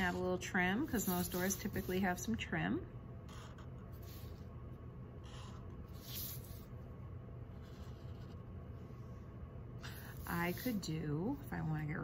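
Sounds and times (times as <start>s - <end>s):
marker strokes on paper: 0.0s - 2.4s, 5.2s - 6.8s, 10.0s - 11.0s
low steady hum: 0.0s - 12.0s.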